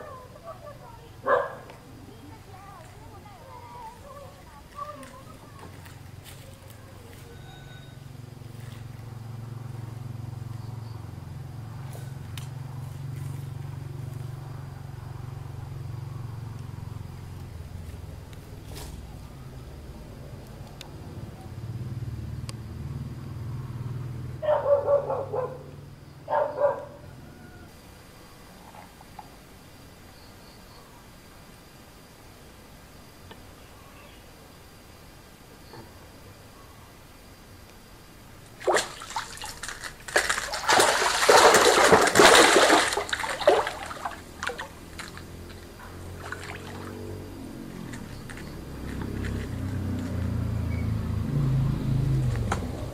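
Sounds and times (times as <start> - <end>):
dog barking: 1.2 - 1.7, 24.4 - 25.7, 26.3 - 27.1
low steady hum: 30.9 - 49.7
fish thrashing and splashing: 38.5 - 47.1.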